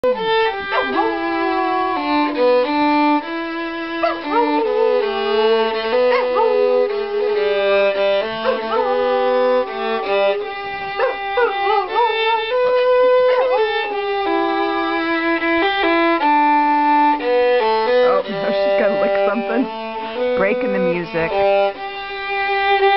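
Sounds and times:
violin melody: 0:00.0 - 0:22.9
dog howling: 0:00.2 - 0:02.1, 0:04.0 - 0:14.0, 0:18.0 - 0:18.3.

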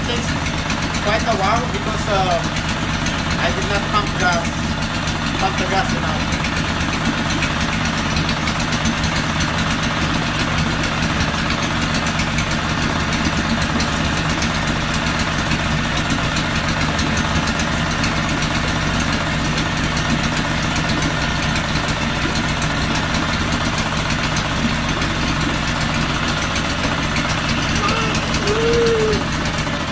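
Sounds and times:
outboard motor idling: 0:00.0 - 0:29.9.

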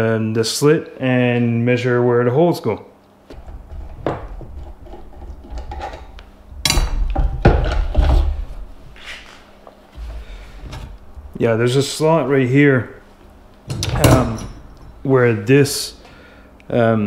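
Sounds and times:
bandsaw parts knocking and scraping: 0:03.3 - 0:08.6, 0:13.7 - 0:14.7.

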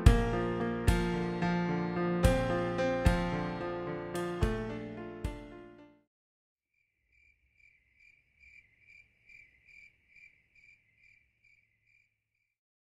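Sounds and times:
faint cricket chirping: 0:06.8 - 0:12.6.

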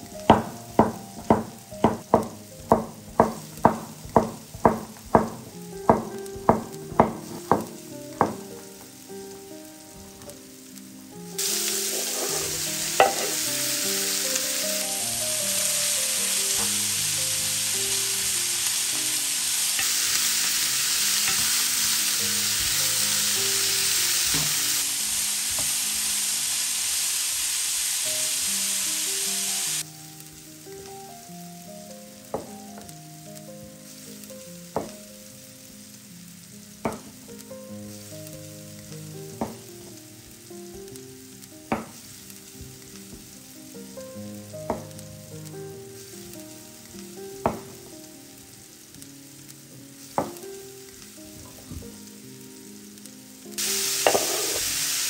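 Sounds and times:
soft background music: 0:00.0 - 0:26.2, 0:29.0 - 0:55.0
food sizzling in a frying pan: 0:00.0 - 0:55.0
sharp knocks: 0:00.3 - 0:08.5.

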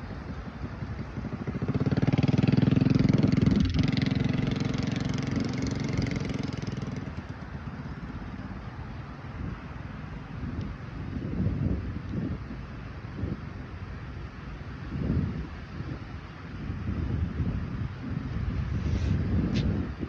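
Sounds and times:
motorbike engine passing by: 0:00.0 - 0:08.2.

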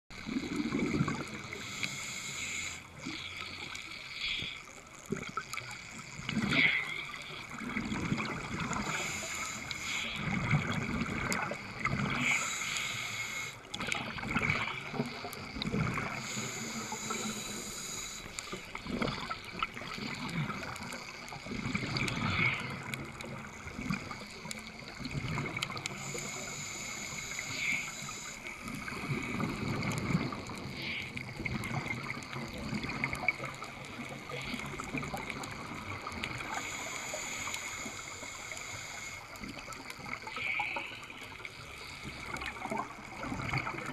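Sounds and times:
regulator inhalation hiss: 0:00.2 - 0:04.9, 0:08.6 - 0:24.9, 0:25.6 - 0:32.1, 0:32.8 - 0:42.6
bubbling exhalations: 0:00.3 - 0:01.4.

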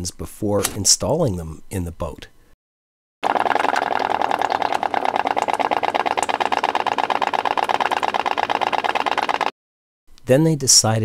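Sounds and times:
pop pop engine putting: 0:03.2 - 0:09.5.

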